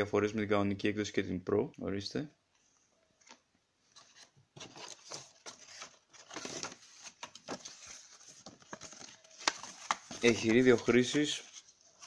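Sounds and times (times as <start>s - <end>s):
cardboard packaging rustling: 3.9s - 12.0s
paper manual rustling: 3.9s - 12.0s.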